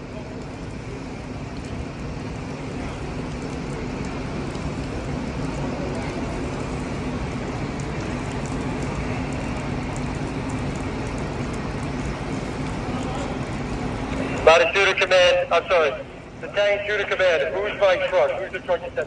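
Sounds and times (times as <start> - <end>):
diesel engine running: 0.0 - 19.0.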